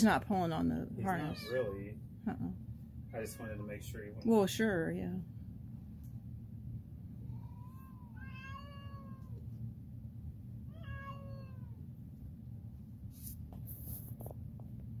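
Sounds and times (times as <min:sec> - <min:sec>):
cat meowing: 0:01.0 - 0:01.9, 0:07.2 - 0:09.4, 0:10.7 - 0:11.8.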